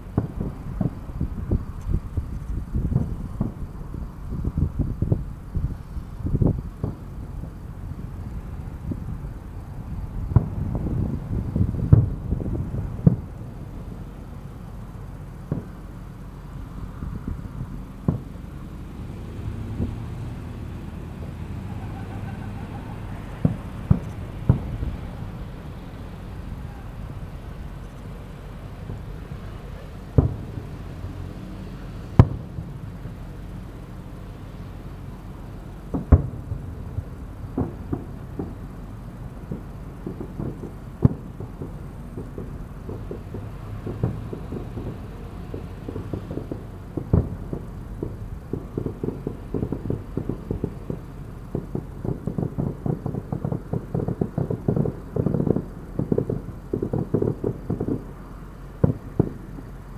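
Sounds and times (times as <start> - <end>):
fireworks exploding: 0.0 - 59.9.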